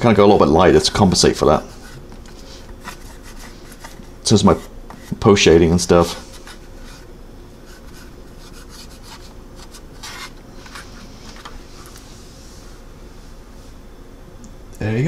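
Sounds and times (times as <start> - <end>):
hands rubbing plastic model: 1.2 - 5.2, 6.0 - 11.9.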